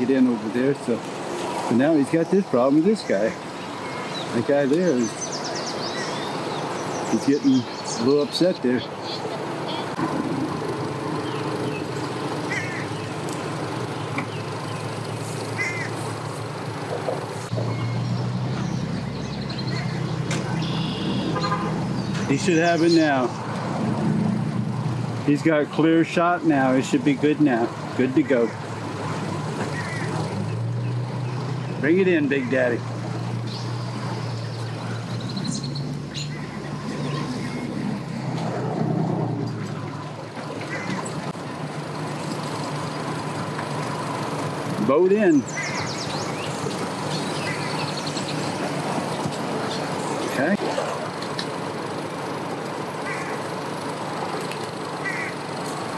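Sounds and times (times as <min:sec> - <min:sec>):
vehicle engines humming: 0:00.0 - 0:55.9
bird calls: 0:01.9 - 0:10.1, 0:11.1 - 0:23.6, 0:27.5 - 0:38.3, 0:39.5 - 0:41.3, 0:45.0 - 0:51.6, 0:52.9 - 0:53.9, 0:54.6 - 0:55.9.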